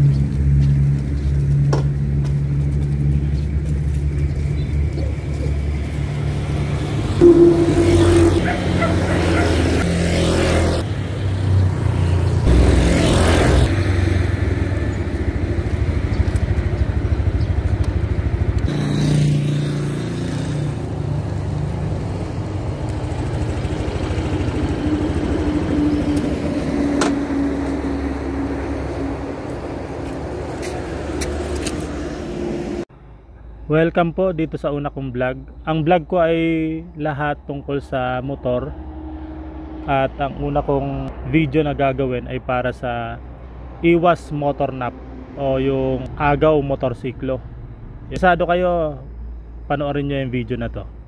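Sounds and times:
small motorcycle engines: 0:08.4 - 0:28.4.

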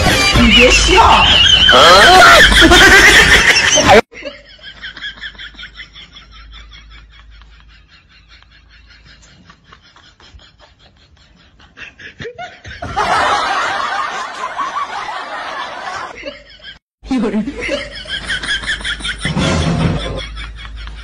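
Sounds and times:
loud laughter: 0:00.0 - 0:16.8, 0:17.5 - 0:21.0
breathy snickering: 0:04.8 - 0:12.8.

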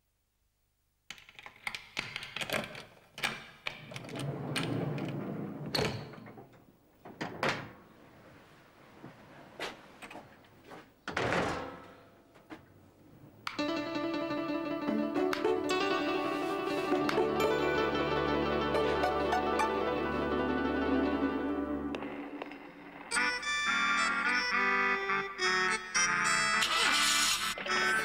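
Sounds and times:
door scraping open: 0:03.9 - 0:06.4.

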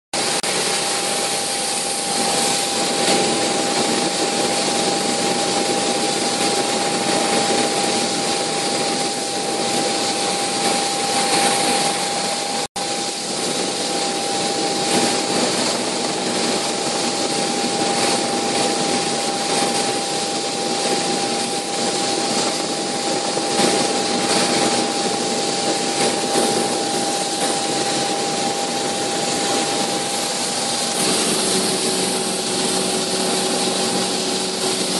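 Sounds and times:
helicopter engine and rotor rush: 0:00.2 - 0:34.9.

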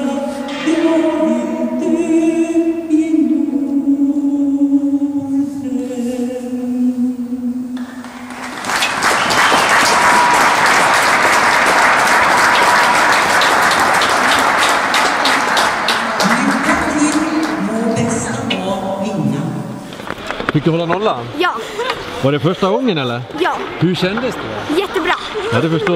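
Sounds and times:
crowd applauding: 0:07.8 - 0:18.4.

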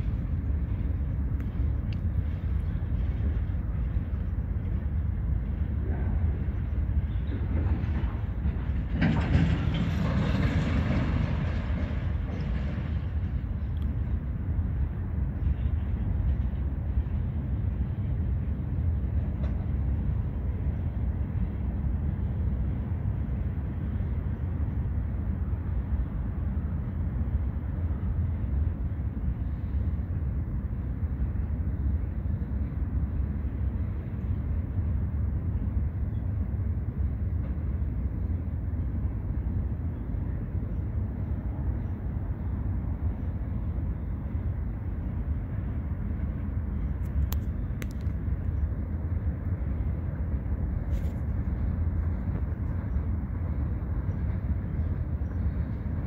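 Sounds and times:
freight train wheels rumbling: 0:00.0 - 0:56.0.

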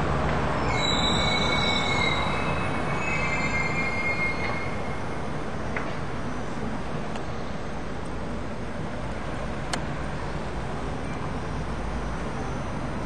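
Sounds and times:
tram wheels squealing on rails: 0:00.0 - 0:07.7
street traffic rumble: 0:00.0 - 0:13.0.

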